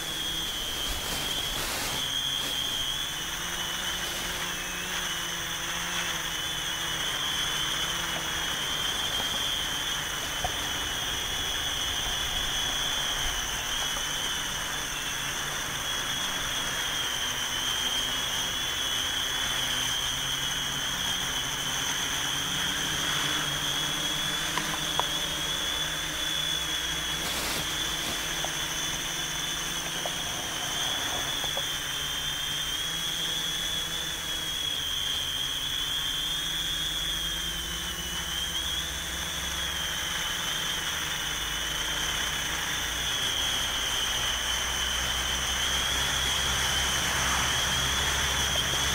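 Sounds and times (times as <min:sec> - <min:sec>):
drone propellers whining: 0:00.0 - 0:48.9.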